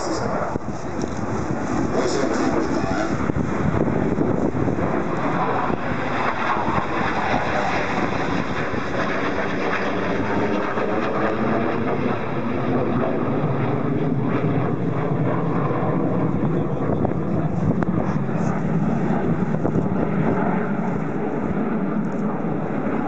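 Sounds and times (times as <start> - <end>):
jets roaring overhead: 0.0 - 23.0.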